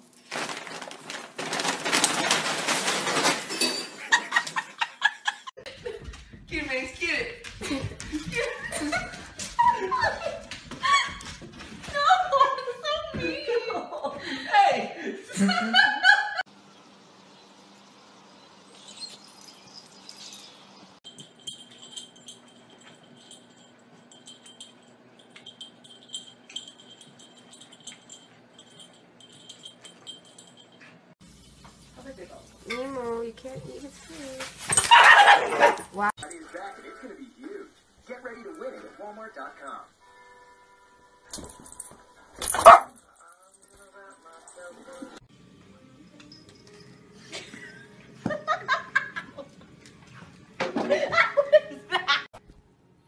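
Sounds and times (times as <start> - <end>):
paper bag crinkling: 0.0 - 3.8, 33.8 - 36.0
small bell jingling: 18.7 - 31.0, 46.0 - 47.9.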